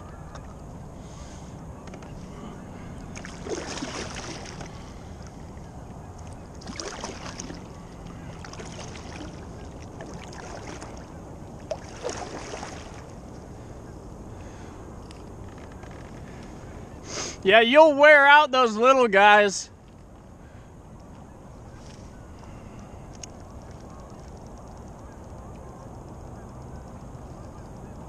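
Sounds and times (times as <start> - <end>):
paddle splashing in water: 2.9 - 13.2.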